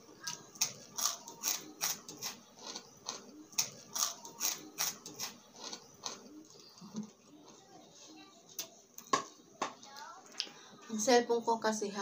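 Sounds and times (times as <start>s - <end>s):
chewing crispy chips: 2.2s - 6.8s.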